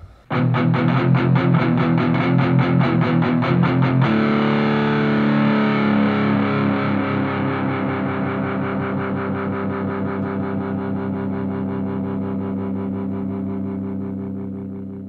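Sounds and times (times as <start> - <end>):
distorted electric guitar chord: 0.3 - 15.0.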